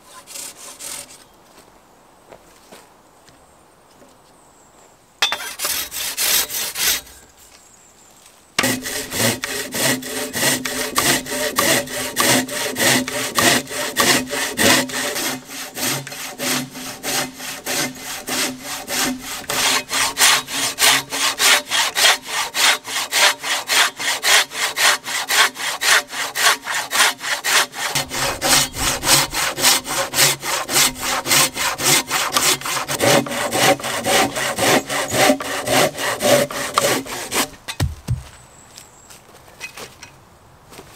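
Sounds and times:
hand saw cutting log: 0.0s - 1.3s, 5.3s - 7.2s, 8.6s - 37.6s.

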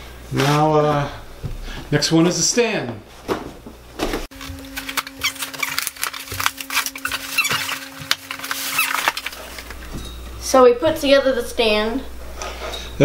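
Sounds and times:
cardboard rustling and clicks: 4.3s - 9.8s
blade cutting box tape: 4.6s - 9.4s.

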